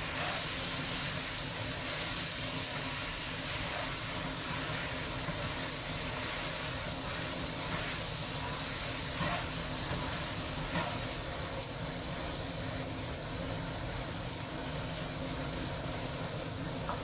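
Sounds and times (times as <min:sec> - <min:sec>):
spatula scraping wok: 0:00.0 - 0:01.2, 0:02.0 - 0:11.3
food sizzling in a wok: 0:00.0 - 0:17.0.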